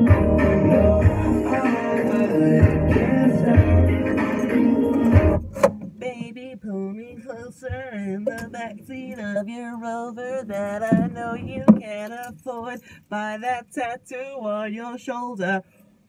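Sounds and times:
woman singing unaccompanied: 0:05.7 - 0:15.6.

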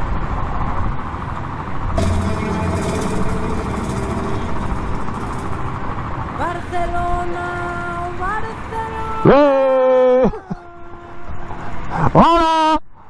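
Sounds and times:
steady hum with held tones: 0:02.0 - 0:08.8.

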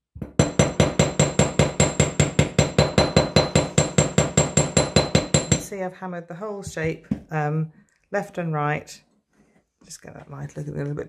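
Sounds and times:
small hammer striking metal: 0:00.1 - 0:05.7.

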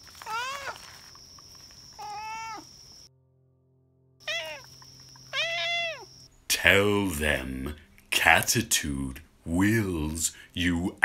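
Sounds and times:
cat meowing: 0:00.2 - 0:00.9, 0:02.0 - 0:02.7, 0:04.2 - 0:06.1.

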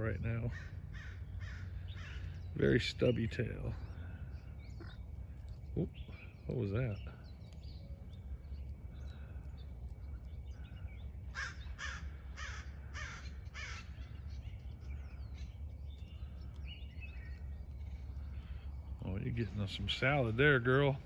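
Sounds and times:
low background rumble: 0:00.0 - 0:21.0
bird harsh cawing: 0:00.4 - 0:02.6, 0:08.8 - 0:19.0.

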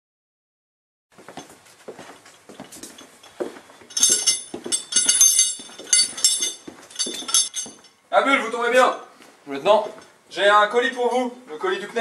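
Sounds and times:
footsteps: 0:01.1 - 0:11.3
metallic jingling and clinking: 0:01.3 - 0:08.1.

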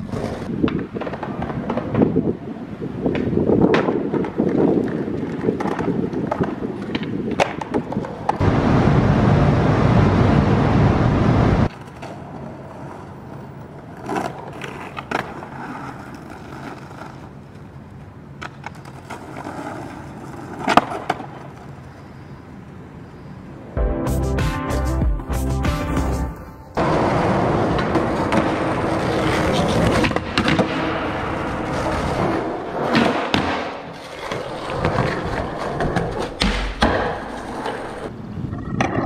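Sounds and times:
skateboard clacks: 0:00.0 - 0:08.5, 0:11.7 - 0:22.0, 0:26.8 - 0:38.1
skateboard wheels rolling on pavement: 0:00.0 - 0:23.8, 0:25.8 - 0:39.0
loud rushing noise: 0:08.4 - 0:11.7, 0:23.8 - 0:32.2.

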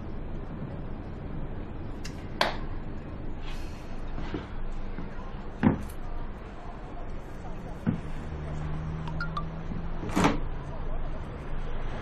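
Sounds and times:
low steady background rumble: 0:00.0 - 0:12.0.

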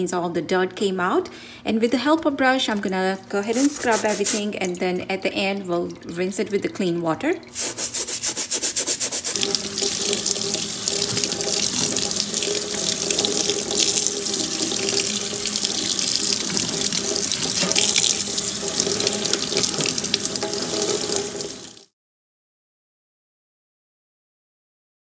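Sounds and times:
brush scrubbing metal mesh: 0:03.5 - 0:04.5, 0:07.5 - 0:21.0
tap water splashing into sink: 0:08.9 - 0:21.9.

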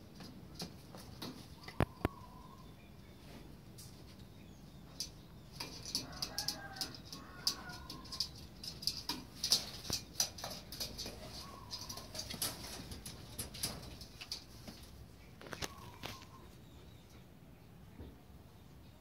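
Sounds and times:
pigeons cooing: 0:00.0 - 0:03.6, 0:04.8 - 0:16.9
wings flapping on cage: 0:05.6 - 0:16.3.

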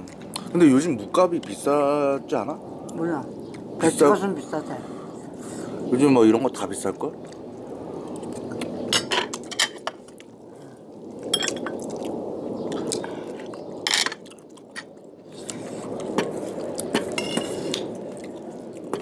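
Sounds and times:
people chewing: 0:00.0 - 0:01.6, 0:07.0 - 0:19.0.

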